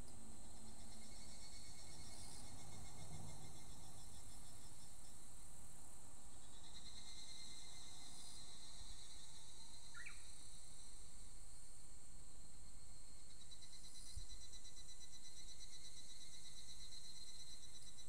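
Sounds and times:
cicadas calling: 0.3 - 11.3.

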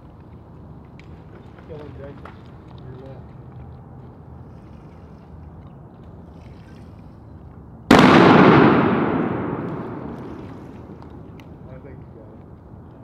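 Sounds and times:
shotgun shot with echo: 7.9 - 10.8.

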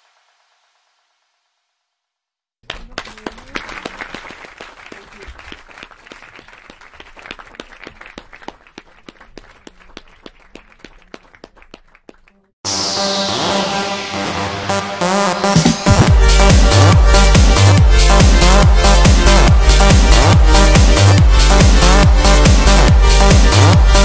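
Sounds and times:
audience applauding: 2.6 - 12.5.

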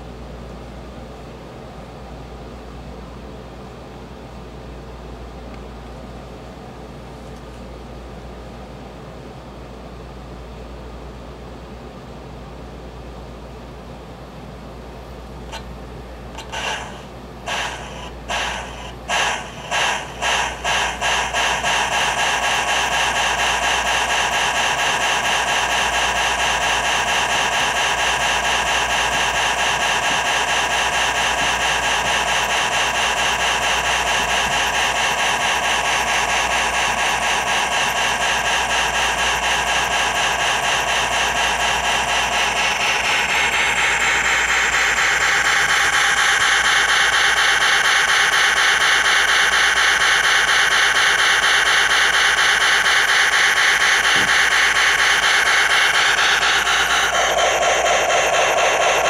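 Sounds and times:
model train motor whirring: 16.3 - 59.0.

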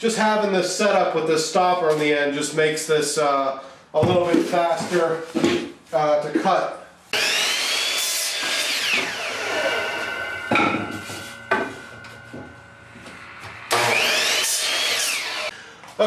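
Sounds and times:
miter saw cutting wood: 7.1 - 15.5.

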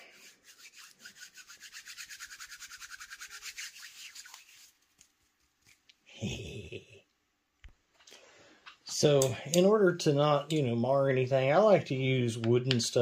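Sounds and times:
fast rubbing on small part: 0.1 - 5.7
low voice: 6.2 - 7.0.

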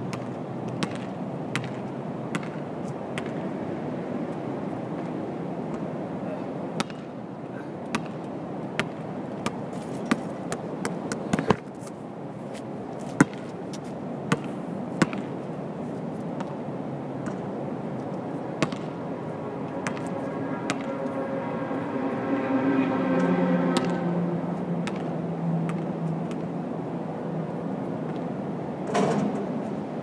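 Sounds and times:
ball hitting rim: 0.1 - 2.6, 18.6 - 19.0, 19.8 - 21.0, 23.7 - 24.0, 24.8 - 25.1
basketball bouncing on court: 0.1 - 2.6, 3.2 - 3.5, 6.8 - 7.1, 7.9 - 11.6, 13.2 - 13.5, 14.3 - 15.4, 18.6 - 19.0, 19.8 - 20.9, 23.8 - 24.0, 24.8 - 26.4
drone with held tones: 18.9 - 24.8.

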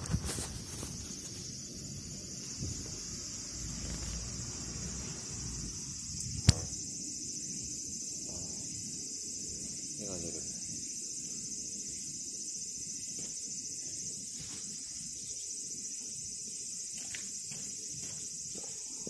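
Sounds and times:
night insects chirping: 0.0 - 19.0
sharp click: 6.4 - 6.7.

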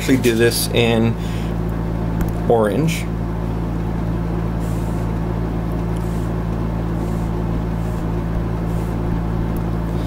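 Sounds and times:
electrical hum: 0.0 - 10.0.

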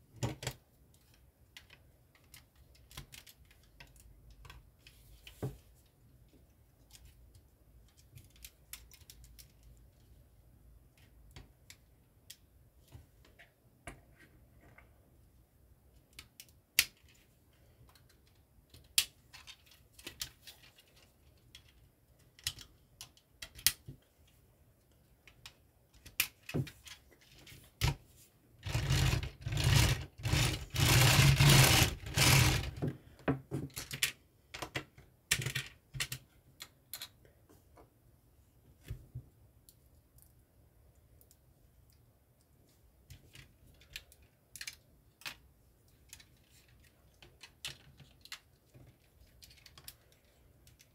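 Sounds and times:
toy car rattling on baseplate: 28.6 - 32.8
plastic pieces clicking: 43.1 - 50.9.

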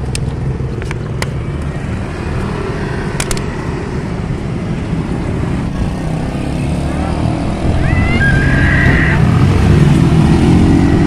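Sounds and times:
road traffic passing: 0.0 - 11.0.

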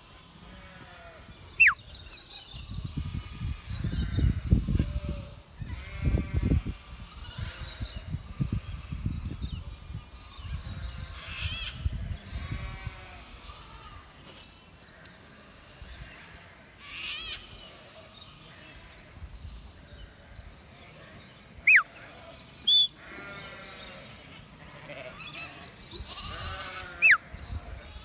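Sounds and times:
sheep bleating: 0.4 - 1.8, 3.0 - 7.9, 12.3 - 14.1, 23.0 - 28.0
sharp whistles: 1.6 - 1.8, 21.7 - 21.9, 22.6 - 23.0.

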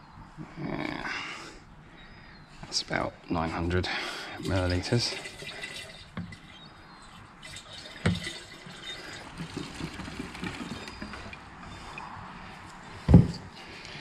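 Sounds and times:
petrol pouring into plastic container: 4.4 - 6.4, 7.4 - 11.2.

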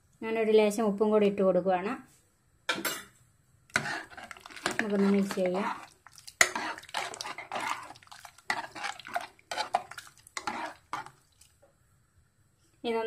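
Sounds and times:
metal ladle scraping a pot: 3.7 - 11.2.

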